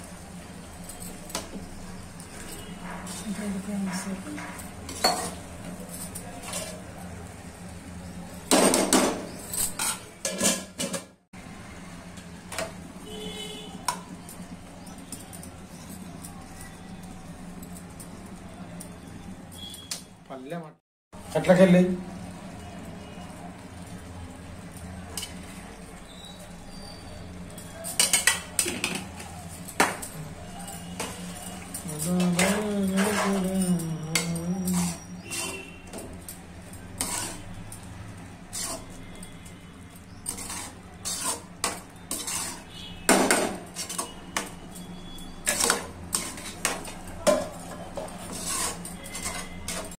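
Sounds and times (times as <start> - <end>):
spoon scraping and clanking a pot: 0.7 - 7.1, 8.5 - 11.1, 25.0 - 50.0
loud utensil clatter: 8.5 - 11.2, 27.6 - 30.2, 30.8 - 37.9, 40.1 - 50.0.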